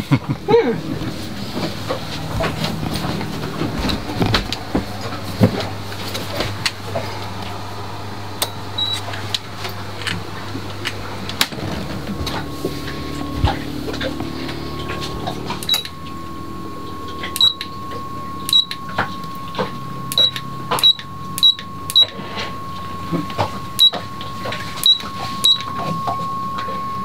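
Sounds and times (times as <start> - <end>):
low mechanical hum: 0.0 - 27.0
higher steady tone: 10.4 - 27.0
switches clicking: 15.4 - 16.1, 17.3 - 17.8, 18.5 - 19.4, 20.1 - 22.2.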